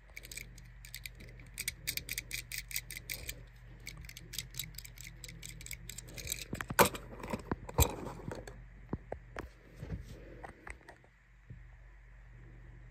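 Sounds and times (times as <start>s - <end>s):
toy car clicks and taps: 0.2s - 6.7s.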